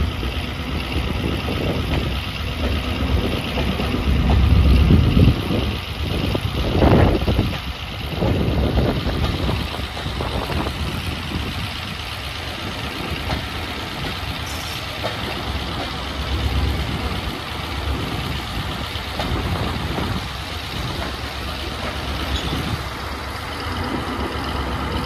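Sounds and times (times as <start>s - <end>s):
diesel locomotive engine running: 0.0s - 25.0s
train wheels rumbling on track: 0.0s - 25.0s.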